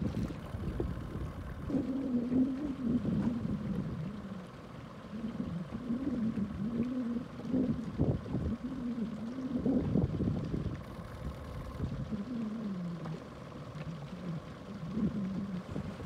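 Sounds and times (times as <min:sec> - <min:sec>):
outboard motor humming: 0:00.0 - 0:16.0.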